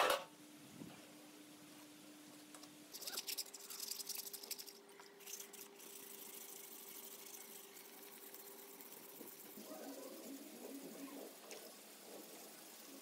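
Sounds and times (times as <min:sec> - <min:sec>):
faint steady hum: 0:00.0 - 0:13.0
sandpaper scrubbing wet surface: 0:05.3 - 0:13.0.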